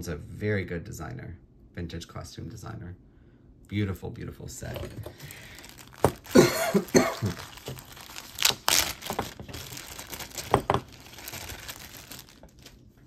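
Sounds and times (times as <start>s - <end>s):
packaging rustling: 4.7s - 13.0s
person coughing: 6.2s - 7.6s.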